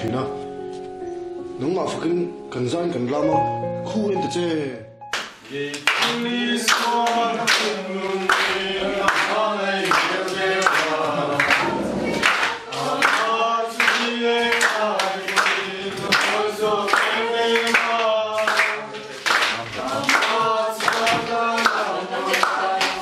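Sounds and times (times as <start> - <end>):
hands clapping in time: 5.1 - 7.7, 8.3 - 23.0
group singing: 5.4 - 23.0.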